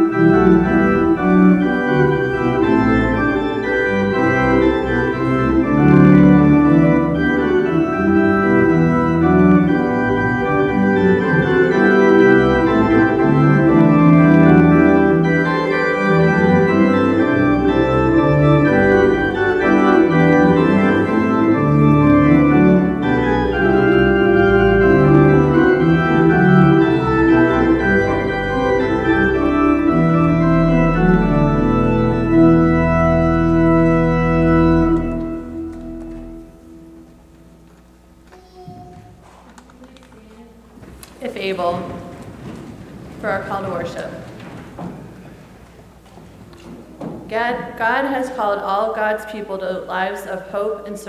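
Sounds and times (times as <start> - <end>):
organ playing sustained chords: 0.0 - 38.3.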